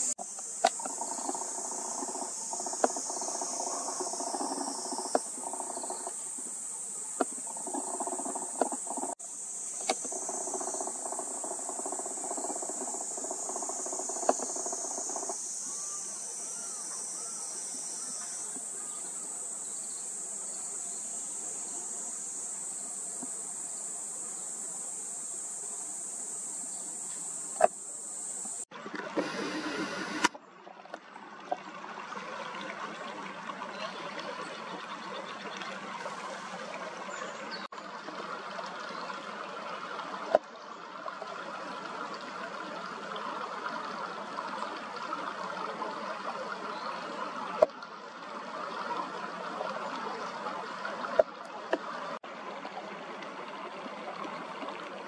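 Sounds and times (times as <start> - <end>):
cicadas buzzing: 0.0 - 30.3
stream water rushing over rocks: 28.8 - 30.3.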